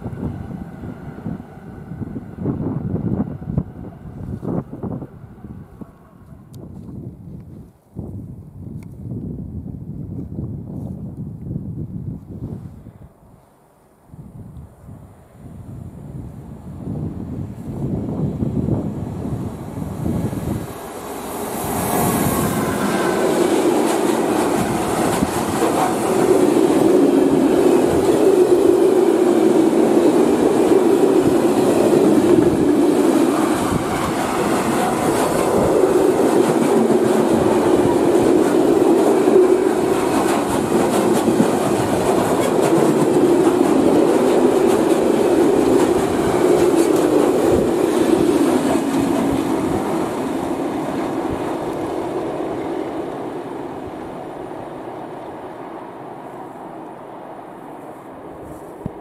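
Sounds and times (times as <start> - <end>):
freight train passing: 0.0 - 6.9, 14.8 - 59.0
wagon wheels rumbling on rails: 22.1 - 51.8
clickety-clack wheel beats: 36.3 - 47.8.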